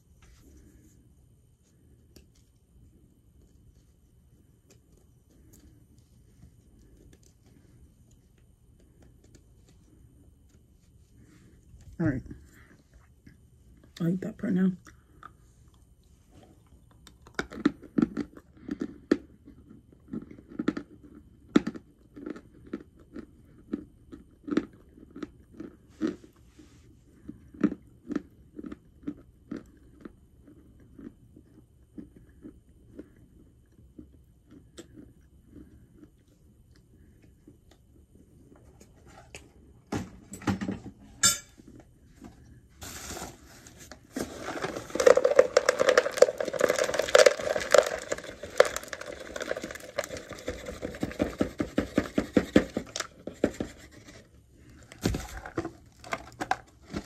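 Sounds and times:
scraping and rustling handling: 0:42.2 - 0:57.0.

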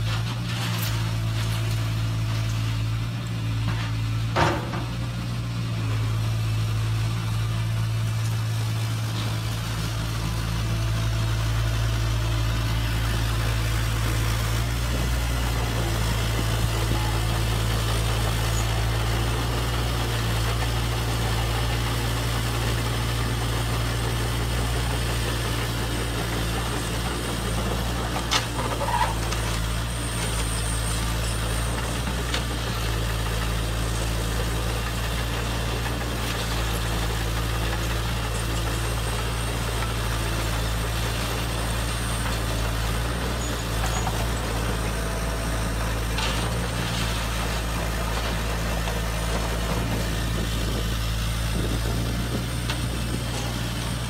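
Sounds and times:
low engine idling drone: 0:49.3 - 0:53.5.

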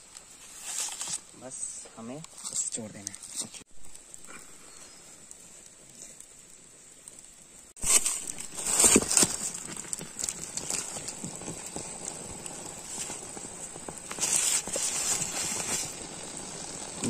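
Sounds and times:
bamboo knocking and cracking: 0:07.8 - 0:11.8.

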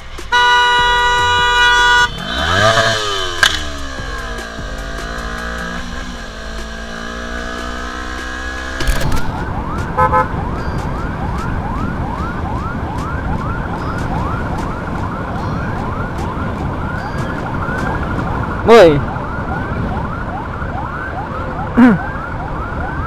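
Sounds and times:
motorcycle engine running: 0:00.0 - 0:10.3
road noise: 0:00.0 - 0:23.0
siren in rapid rising sweeps: 0:01.3 - 0:23.0.

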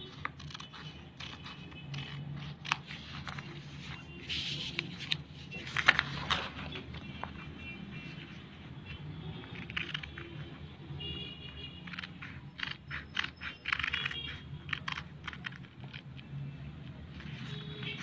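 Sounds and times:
scissors cutting paper: 0:00.0 - 0:06.6, 0:09.5 - 0:10.6, 0:11.8 - 0:16.2.

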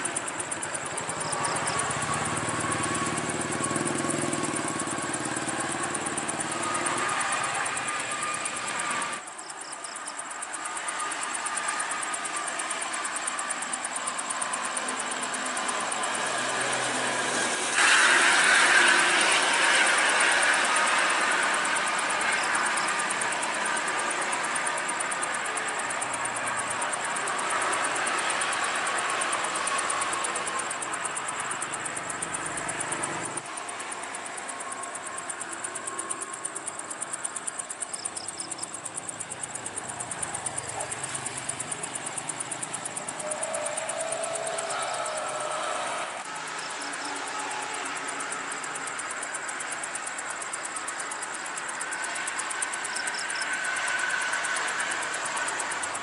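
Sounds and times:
bus driving past: 0:00.0 - 0:09.2, 0:10.5 - 0:37.5, 0:38.5 - 0:51.1, 0:51.8 - 0:56.0
insect chirping in pulses: 0:00.0 - 0:56.0
road traffic: 0:00.0 - 0:56.0
steady hiss: 0:00.0 - 0:56.0.

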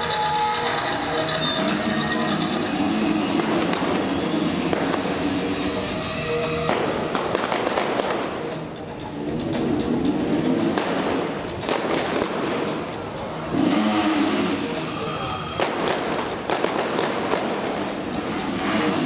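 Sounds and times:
pyrotechnic bangs: 0:15.6 - 0:18.0.

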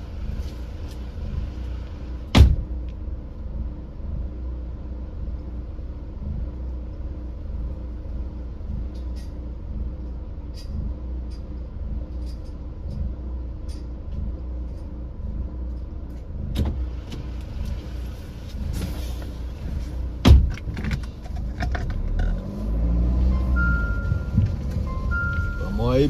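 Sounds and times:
car driving rumble: 0:00.0 - 0:26.0
small rattles and clicks: 0:08.7 - 0:15.0.

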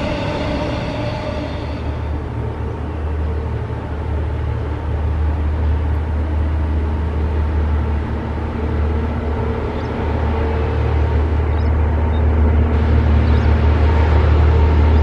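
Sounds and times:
diesel locomotive engine rumble: 0:00.0 - 0:15.0.

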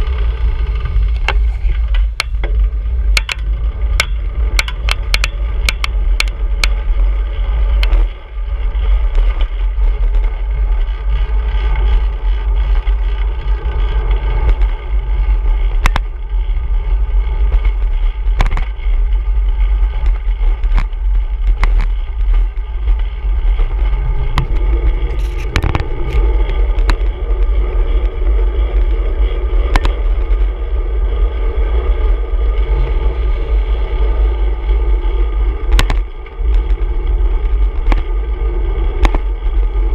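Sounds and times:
traffic noise: 0:00.0 - 0:39.9
wind rumbling on microphone: 0:00.0 - 0:39.9
sharp clicks and knocks: 0:00.8 - 0:07.0, 0:07.7 - 0:08.1, 0:15.6 - 0:16.2, 0:17.5 - 0:19.0, 0:19.9 - 0:27.2, 0:29.6 - 0:30.1, 0:35.7 - 0:36.9, 0:37.7 - 0:38.1, 0:38.9 - 0:39.3.

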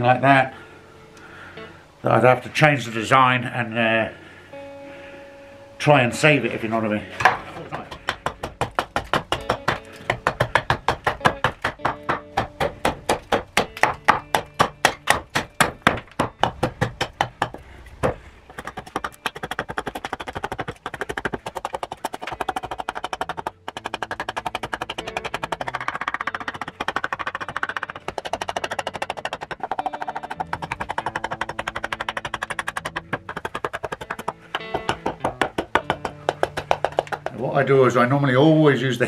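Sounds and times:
guitar background music: 0:00.0 - 0:39.0
axe chopping wood: 0:07.2 - 0:37.4.

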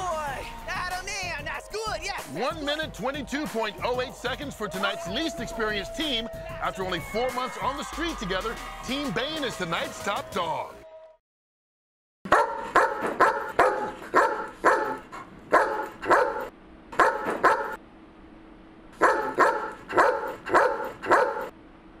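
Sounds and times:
dog barking: 0:12.3 - 0:17.8, 0:19.0 - 0:21.5.

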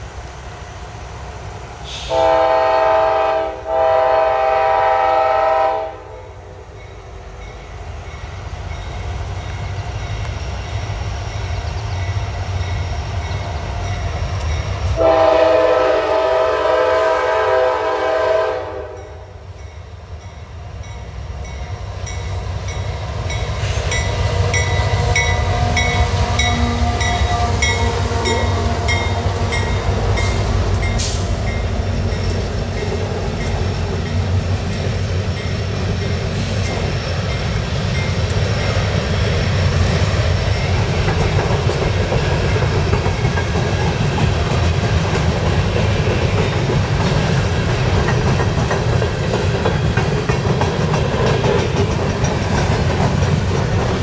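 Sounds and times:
diesel locomotives rumbling: 0:00.0 - 0:54.0
train wheel clatter: 0:20.9 - 0:54.0.

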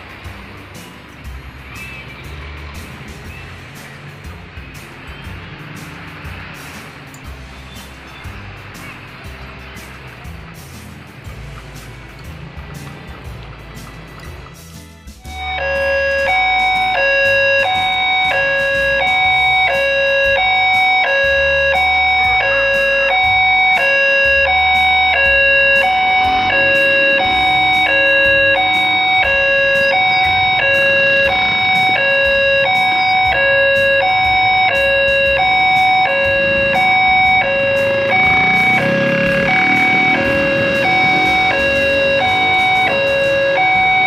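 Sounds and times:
level crossing alarm ding-dong: 0:15.2 - 0:44.0.

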